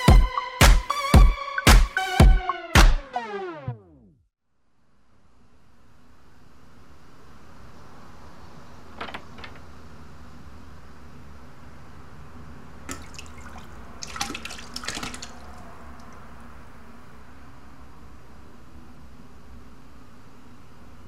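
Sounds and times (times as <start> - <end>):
person vomiting into toilet: 12.9 - 16.2.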